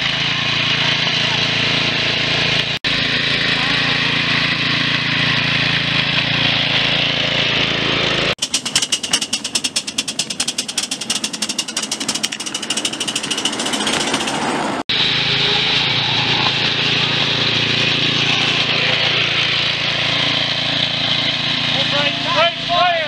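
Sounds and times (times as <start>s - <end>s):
train wheels clattering on track: 8.4s - 14.8s.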